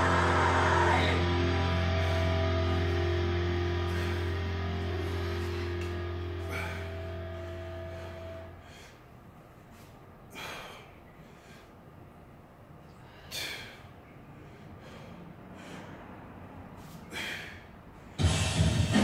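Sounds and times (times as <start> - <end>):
person breathing hard: 0.0 - 9.2, 10.2 - 11.9, 12.9 - 18.3
loud background music with a beat: 18.2 - 19.0.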